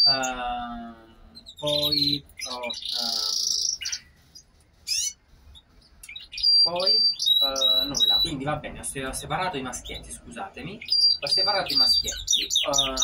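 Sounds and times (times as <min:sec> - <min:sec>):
man's wordless voice: 0:00.0 - 0:03.3, 0:06.7 - 0:13.0
canaries chirping and singing: 0:00.0 - 0:13.0.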